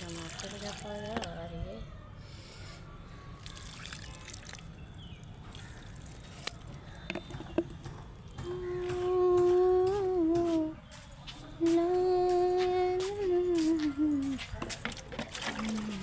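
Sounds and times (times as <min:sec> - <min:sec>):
water trickling and dripping: 0:00.0 - 0:01.5, 0:03.4 - 0:07.0
woman humming: 0:08.4 - 0:10.7.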